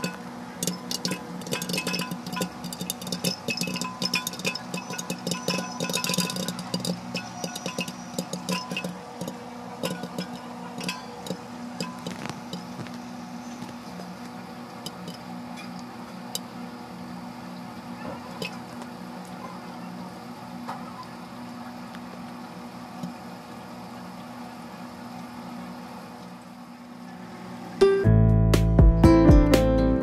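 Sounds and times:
popcorn popping: 0:00.0 - 0:19.4
low hum and hiss: 0:00.0 - 0:28.4.

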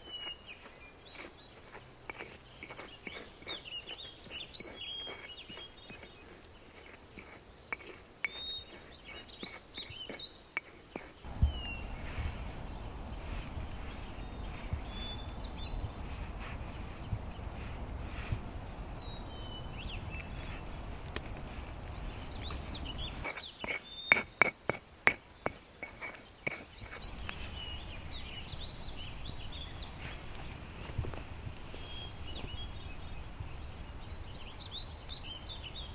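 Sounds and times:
small birds chirping: 0:00.0 - 0:35.9
low rumble: 0:11.3 - 0:23.2.

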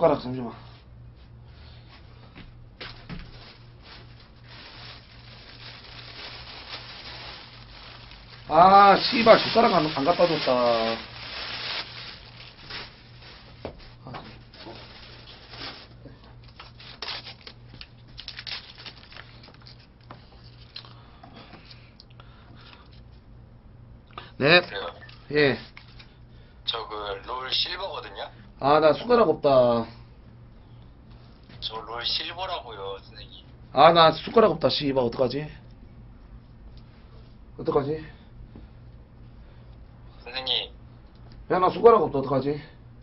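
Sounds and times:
low steady hum: 0:00.0 - 0:43.0
plastic bag rustling: 0:02.8 - 0:20.7.

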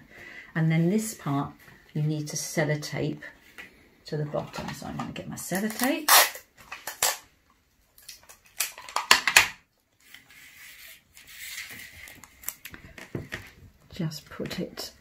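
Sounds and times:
sticky tape rasping: 0:05.6 - 0:07.2.

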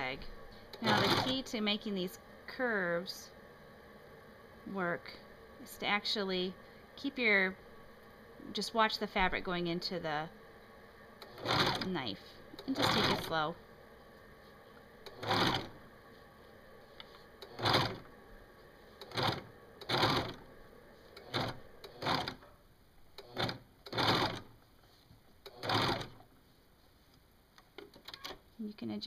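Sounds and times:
serger sewing machine running: 0:00.7 - 0:01.6, 0:11.2 - 0:12.0, 0:12.6 - 0:13.5, 0:15.0 - 0:15.8, 0:17.4 - 0:18.1, 0:19.0 - 0:20.5, 0:21.2 - 0:22.4, 0:23.2 - 0:24.5, 0:25.5 - 0:26.2.

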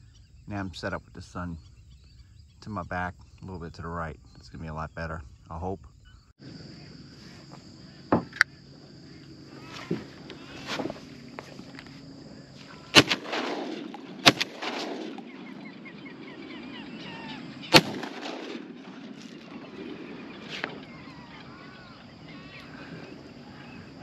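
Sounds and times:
shotgun shots echoing: 0:12.9 - 0:20.8.

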